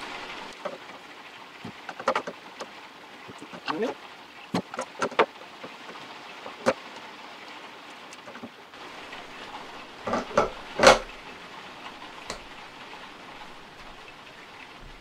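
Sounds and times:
metal clicks and knocks: 1.7 - 2.4, 8.2 - 15.0.

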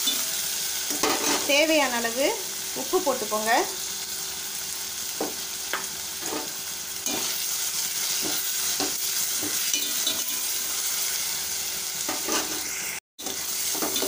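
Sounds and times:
vegetables sizzling in hot oil: 0.0 - 14.0
spatula scraping pan: 0.9 - 1.5, 6.2 - 7.4, 12.1 - 14.0.

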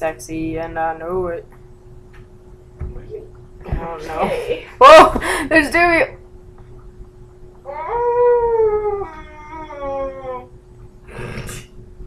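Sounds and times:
faint steady hum: 0.0 - 12.0
person howling: 7.7 - 10.5.

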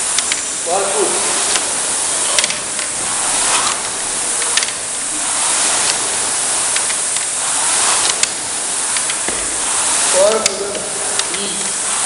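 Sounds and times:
rowing machine flywheel whooshing: 0.0 - 12.0.

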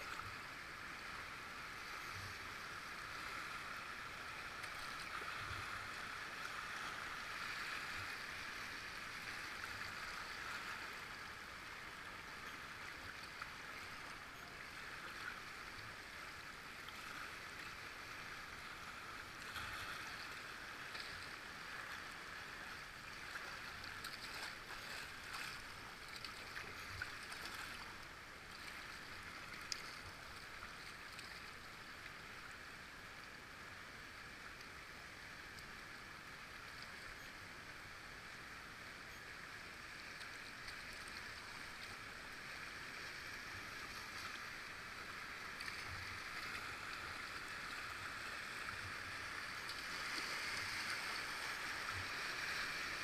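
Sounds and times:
river water rushing: 41.6 - 53.0.

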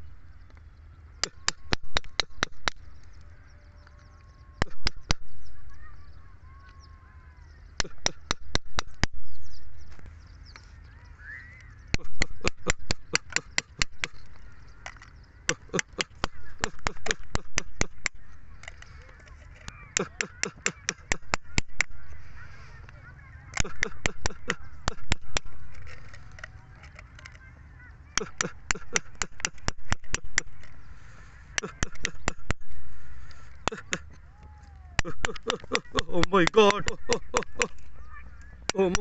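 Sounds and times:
chisel tapping on rock: 1.2 - 2.8, 4.6 - 5.2, 7.8 - 9.2, 11.9 - 18.8, 19.9 - 22.0, 23.6 - 26.1, 28.2 - 30.7, 31.6 - 32.8, 35.0 - 37.8, 38.7 - 39.0.

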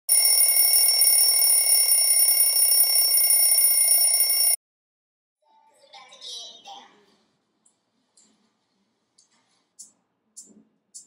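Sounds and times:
electronic ringing tone: 0.1 - 4.6.

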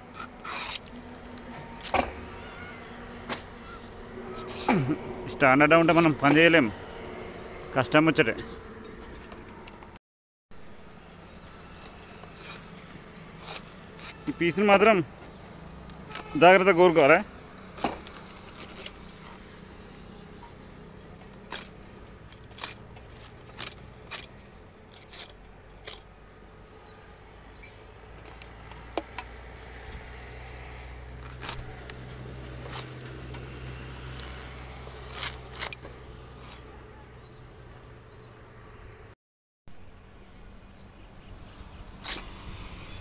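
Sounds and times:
dry palm fibre snapping: 0.1 - 2.3, 3.2 - 3.5, 4.3 - 5.0, 11.4 - 14.4, 15.8 - 26.2, 30.6 - 33.5, 34.1 - 36.7, 42.0 - 42.4.

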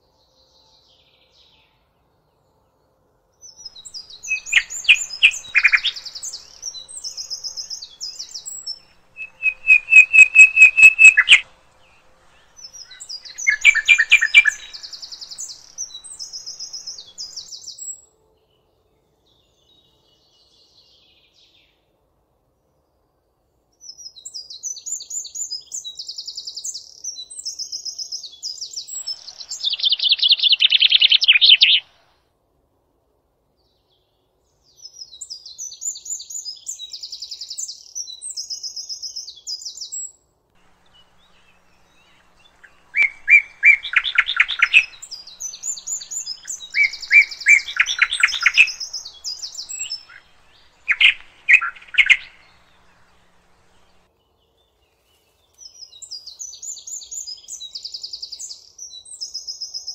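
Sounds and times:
lower trilling birdsong: 3.4 - 18.0, 23.8 - 32.1, 34.6 - 59.9
songbirds singing high notes: 3.6 - 18.0, 28.5 - 32.1, 40.6 - 54.1.

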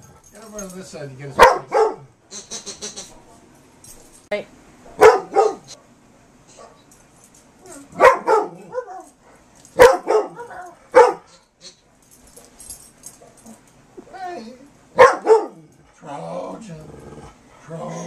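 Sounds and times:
dog barking: 1.4 - 2.1, 4.9 - 5.9, 7.9 - 9.2, 9.8 - 11.4, 14.9 - 15.7.

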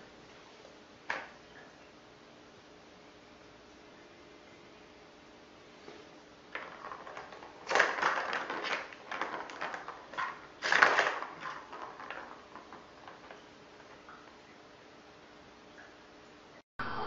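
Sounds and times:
plastic balls rattling in toy: 6.5 - 14.0.

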